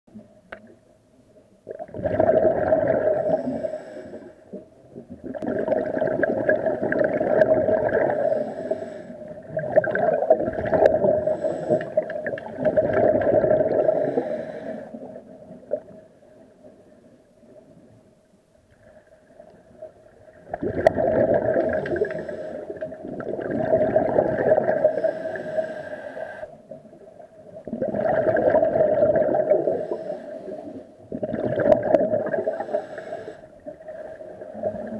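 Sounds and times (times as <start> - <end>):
underwater exhaust bubbles rushing: 1.7 - 3.4, 5.0 - 8.6, 9.4 - 14.4, 20.4 - 25.2, 26.8 - 30.1, 31.1 - 32.8.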